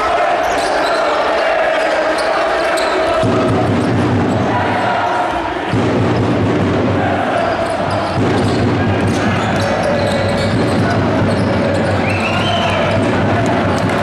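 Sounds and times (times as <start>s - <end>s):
crowd noise: 0.0s - 14.0s
basketball bouncing: 7.6s - 12.0s.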